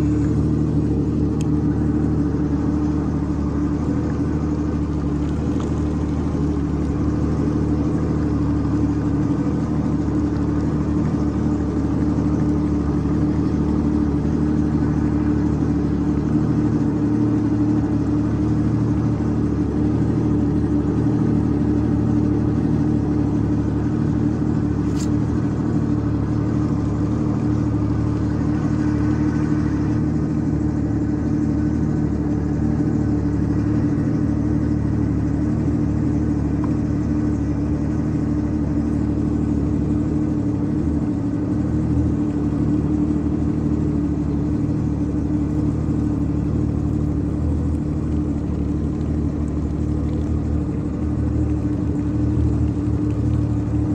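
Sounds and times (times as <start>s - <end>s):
jetski engine running: 0.0s - 53.9s
brief click: 24.8s - 25.2s.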